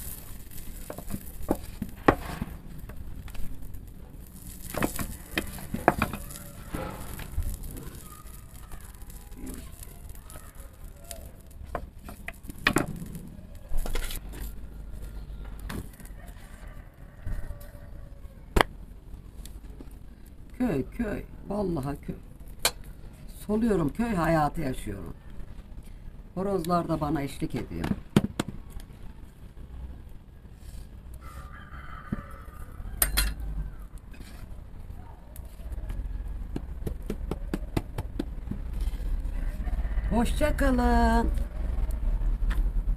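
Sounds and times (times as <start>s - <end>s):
low background rumble: 0.0s - 42.9s
rooster crowing: 16.0s - 18.5s, 31.2s - 33.9s, 39.2s - 40.7s.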